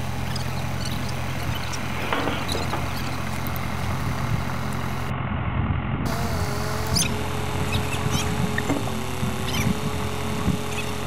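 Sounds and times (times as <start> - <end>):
tractor engine idling: 0.0 - 5.2, 6.8 - 10.9.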